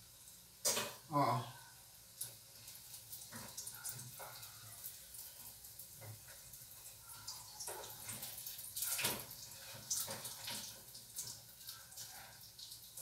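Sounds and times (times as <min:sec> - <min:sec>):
fritters sizzling in a pan: 0:00.0 - 0:13.0
crackling pops of frying oil: 0:00.6 - 0:01.0.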